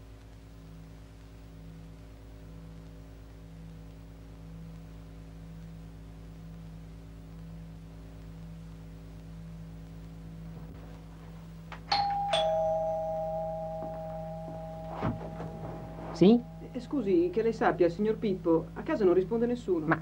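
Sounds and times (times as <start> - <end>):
steady electrical hum: 0.0 - 20.0
two-tone doorbell chime: 11.9 - 17.3.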